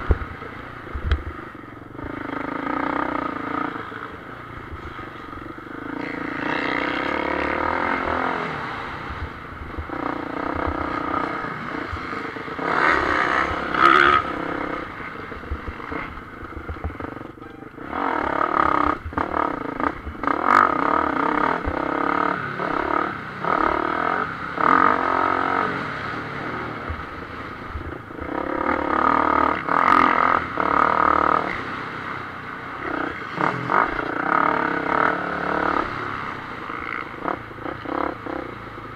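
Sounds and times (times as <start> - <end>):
motocross bike engine revving: 1.8 - 4.0, 4.6 - 27.2, 28.1 - 32.0, 32.8 - 38.9.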